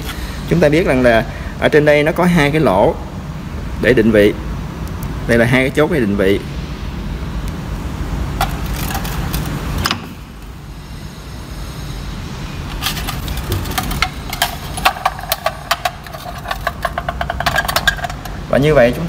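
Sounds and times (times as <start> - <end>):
steady low hum: 0.0 - 19.0
metal parts clinking on tray: 12.8 - 18.4.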